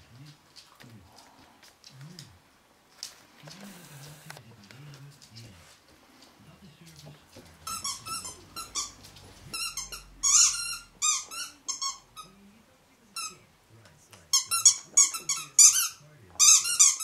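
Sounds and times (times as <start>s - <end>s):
puppy chewing toy: 0.2s - 12.4s, 13.2s - 17.0s
squeaky toy squeaking: 7.6s - 12.3s, 14.3s - 17.0s.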